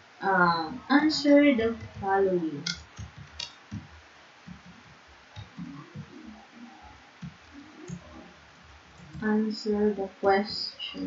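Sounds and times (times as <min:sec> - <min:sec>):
keyboard typing: 0:01.7 - 0:06.2, 0:08.9 - 0:09.3.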